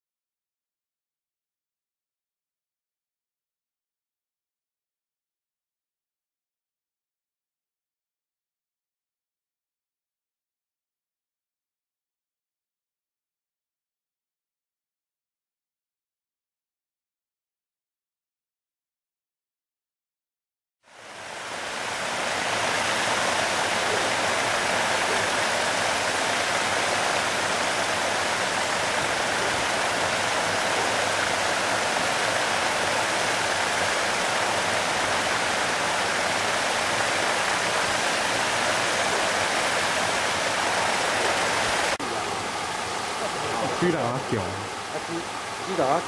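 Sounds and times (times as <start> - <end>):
paddlewheel aerator churning water: 21.0 - 46.0.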